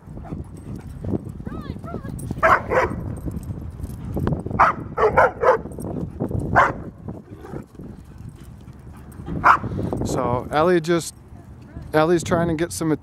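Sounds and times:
dog barking: 2.4 - 3.0, 4.6 - 5.7, 6.5 - 6.9, 9.4 - 9.7.

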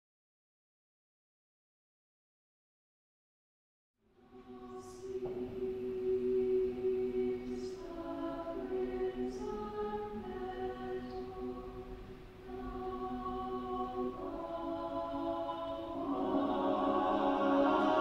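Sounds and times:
choir singing a cappella: 4.2 - 18.0.

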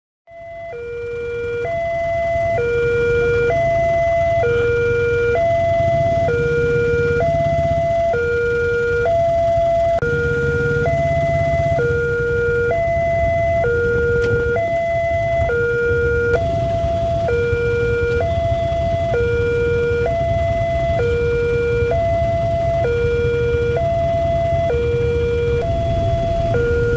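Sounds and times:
level crossing two-tone alarm: 0.3 - 26.9
low rumble: 25.4 - 26.9.

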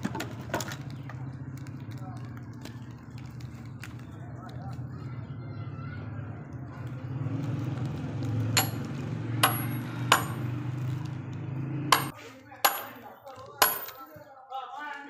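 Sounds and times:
sledgehammer clanking on steel wedge: 8.6 - 10.6, 11.9 - 14.1.

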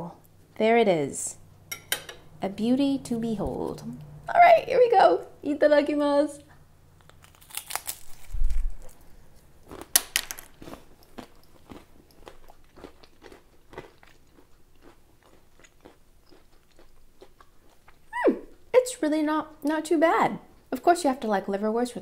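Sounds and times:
cracker crunching: 7.0 - 18.1
crunchy chewing: 7.0 - 18.1.

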